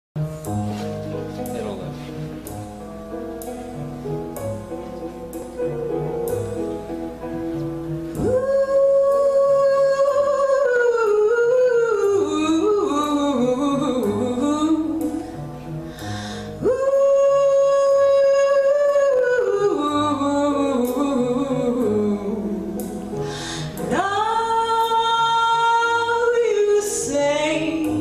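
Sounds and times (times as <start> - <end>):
soft instrumental backing: 0.2 - 28.0
woman singing: 8.2 - 28.0.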